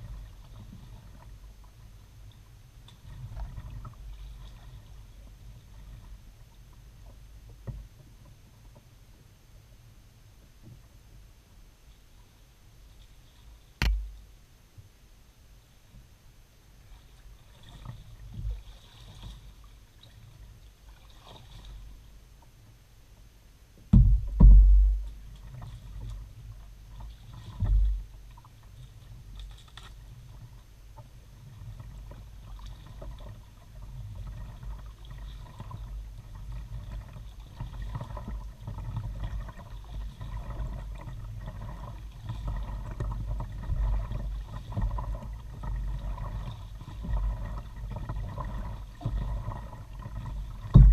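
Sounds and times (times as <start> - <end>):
faint paddling and rustling: 0.0 - 50.9
hull and water rumble: 0.0 - 50.9
heavy low thumps: 24.0 - 25.2.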